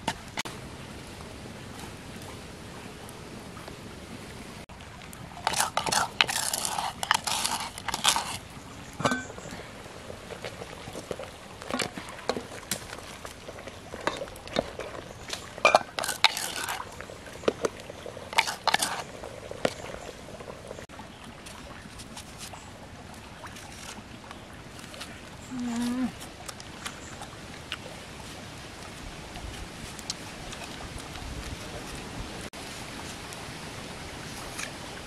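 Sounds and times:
wooden ladle scraping and knocking: 0:05.4 - 0:09.5, 0:13.9 - 0:20.0.

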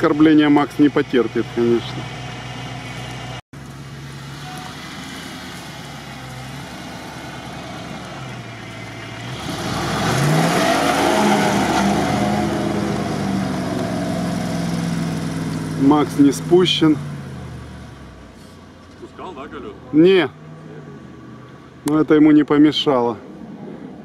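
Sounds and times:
engine idling and revving: 0:00.0 - 0:22.0
tyres churning sand: 0:04.8 - 0:17.0.

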